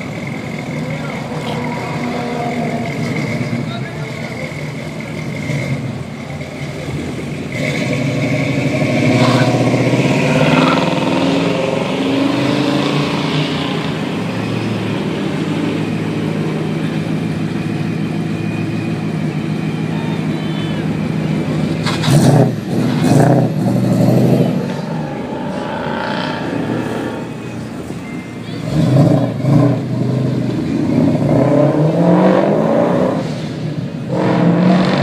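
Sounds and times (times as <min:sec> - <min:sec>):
engine running steadily: 0:00.0 - 0:10.8, 0:13.7 - 0:31.0
car driving off: 0:00.0 - 0:35.0
car accelerating close by: 0:28.6 - 0:35.0.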